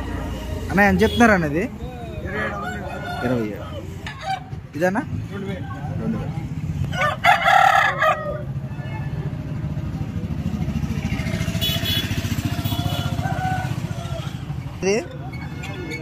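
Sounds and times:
roosters crowing: 2.2s - 4.6s, 6.8s - 9.0s, 11.2s - 14.8s.

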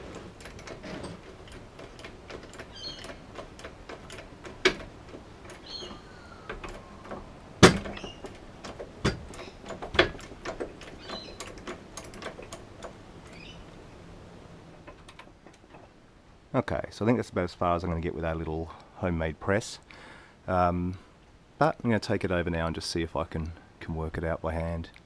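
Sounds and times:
hydraulic jack pumping: 0.0s - 13.5s
sharp cracks of metal parts: 0.0s - 13.5s.

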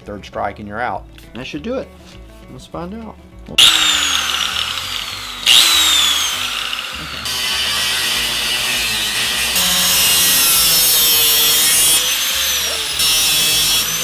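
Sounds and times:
angle grinder cutting metal: 3.6s - 14.0s.

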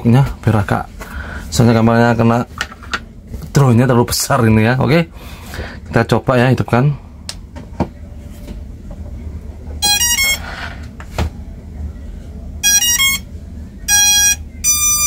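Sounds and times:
drone startup beeps: 9.8s - 10.5s, 12.6s - 15.0s.

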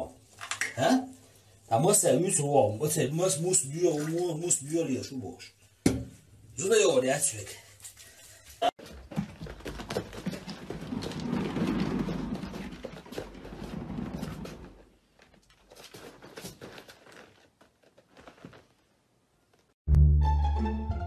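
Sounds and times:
cat paws scrabbling over furniture: 8.8s - 18.8s.

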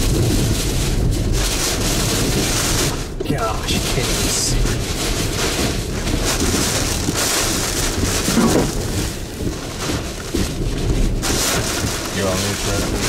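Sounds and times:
hurricane wind: 0.0s - 13.0s
rain lashing a vehicle: 0.0s - 13.0s.

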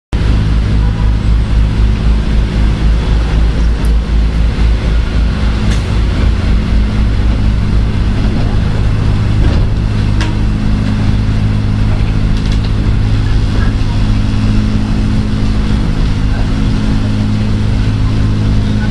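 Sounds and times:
train hum and rumble: 0.1s - 18.9s.

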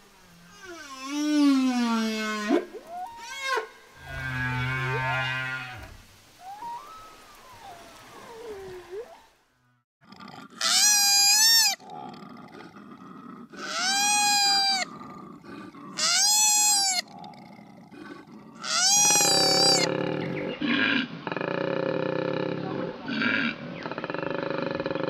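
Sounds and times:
gliding whale song note: 6.4s - 9.3s
animal calling loudly: 13.6s - 14.9s, 15.9s - 17.1s, 18.6s - 20.0s.

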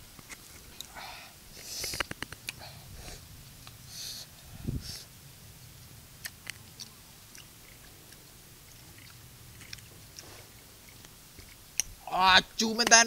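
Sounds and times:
mouth sucking: 1.5s - 5.1s, 6.2s - 12.0s
faint mouth clicks: 1.6s - 5.0s.

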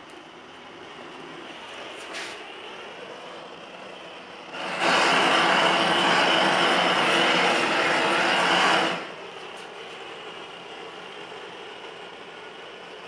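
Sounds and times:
torch flame rushing: 1.9s - 9.6s.

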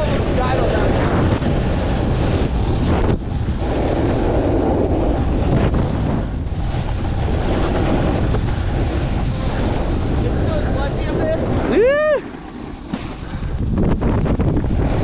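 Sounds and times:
snowboard scraping on snow: 0.0s - 15.0s
wind on microphone: 0.0s - 15.0s.

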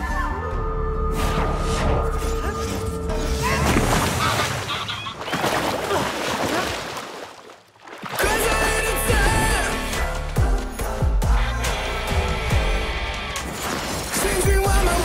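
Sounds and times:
churning water: 3.4s - 10.7s.

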